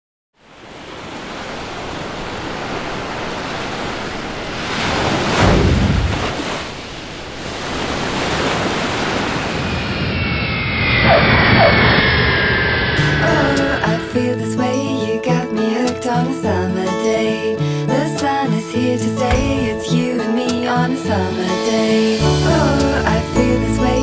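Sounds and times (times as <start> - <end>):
ocean surf washing: 0.4 - 10.1, 13.0 - 24.0
high falling tones: 9.4 - 15.0.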